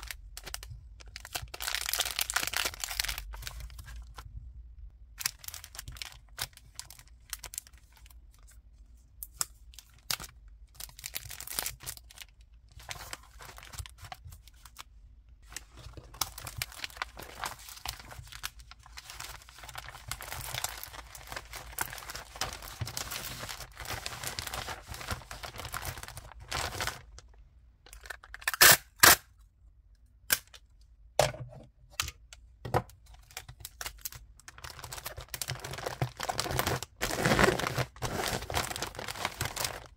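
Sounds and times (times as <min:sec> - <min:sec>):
plastic mailer bag rustling: 0:15.5 - 0:27.3, 0:33.7 - 0:39.9.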